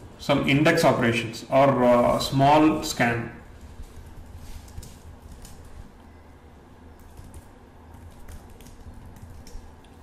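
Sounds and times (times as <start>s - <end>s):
keyboard keys clicking: 7.0s - 10.0s.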